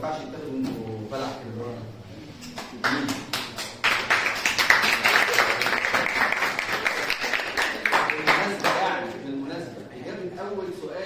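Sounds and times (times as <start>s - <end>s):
audience applauding: 2.8s - 8.8s.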